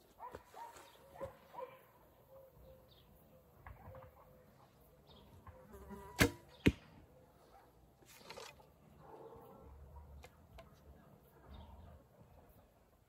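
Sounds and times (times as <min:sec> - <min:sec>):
arrow striking target: 0:06.2 - 0:07.0
bow handling sounds: 0:08.0 - 0:08.8.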